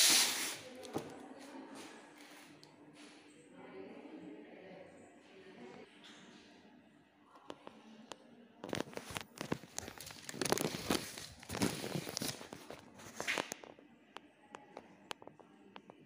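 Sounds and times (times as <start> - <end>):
plastic bag crinkling: 8.7 - 13.5.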